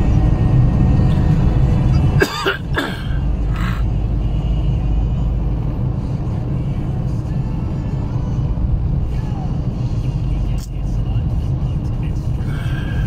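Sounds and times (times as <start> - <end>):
car interior rumble: 0.0 - 13.0
person coughing: 2.2 - 3.8.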